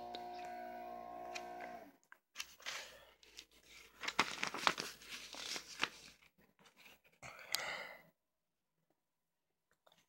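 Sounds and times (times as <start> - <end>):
paper booklet rustling: 2.1 - 7.2.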